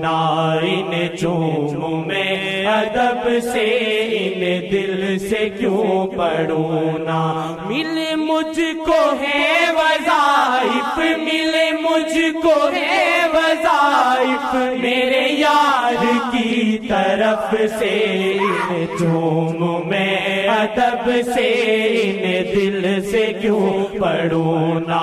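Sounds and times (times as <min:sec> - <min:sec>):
person chanting ornamented melody: 0:07.7 - 0:24.8.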